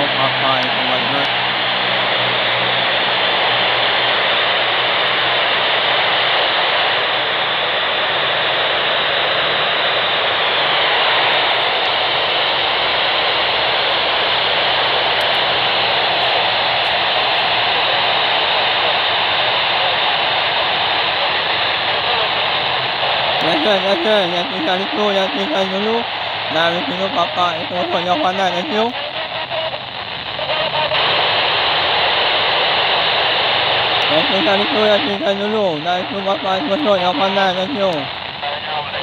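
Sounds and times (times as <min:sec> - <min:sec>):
radio static hiss: 0:00.0 - 0:39.0.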